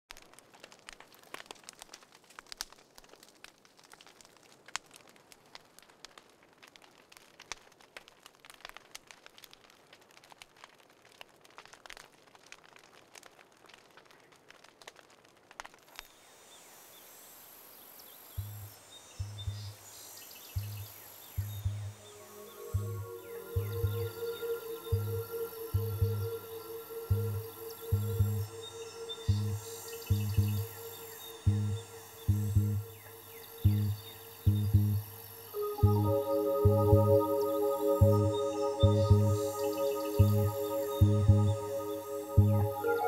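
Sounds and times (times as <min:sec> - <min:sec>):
faint crackling clicks and pops: 0:00.1 - 0:16.2, 0:20.4 - 0:43.0
steady high hiss: 0:16.0 - 0:43.0
deep bass music thumps: 0:21.4 - 0:22.0, 0:22.8 - 0:24.1, 0:24.9 - 0:26.3, 0:27.1 - 0:28.5, 0:29.3 - 0:30.7, 0:31.5 - 0:32.9, 0:33.6 - 0:35.1, 0:38.0 - 0:39.5, 0:40.2 - 0:41.6, 0:42.4 - 0:42.8.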